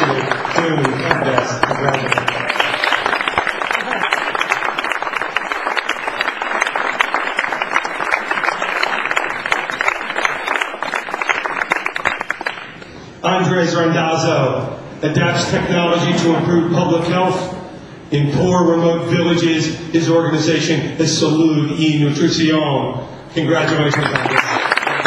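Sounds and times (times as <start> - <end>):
audience applauding: 0.0 - 12.8, 23.6 - 25.0.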